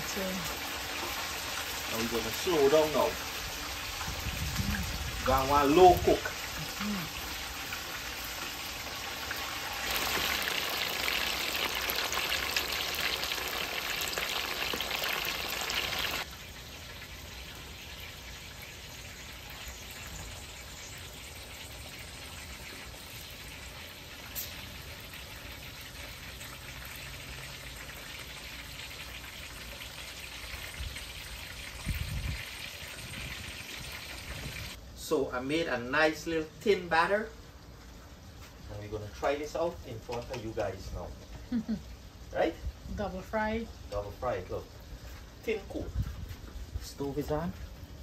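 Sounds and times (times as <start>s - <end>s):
food sizzling in a pan: 0.0s - 34.8s.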